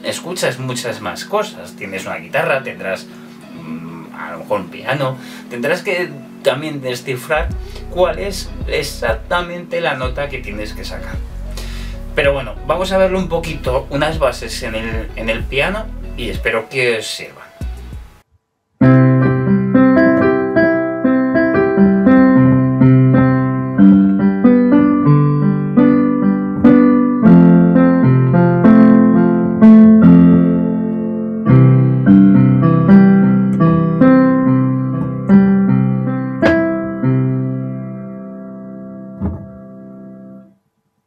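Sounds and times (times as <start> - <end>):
digital piano playing: 0.0 - 18.2, 18.8 - 40.5.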